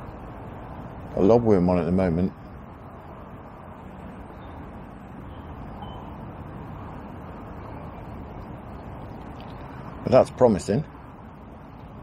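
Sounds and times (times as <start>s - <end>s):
low rushing background noise: 0.0s - 12.0s
faint short high tone: 5.3s - 6.1s.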